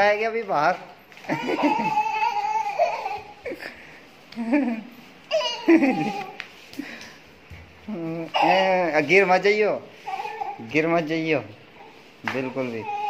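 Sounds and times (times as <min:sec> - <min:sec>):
toddler laughing: 0:01.2 - 0:06.4.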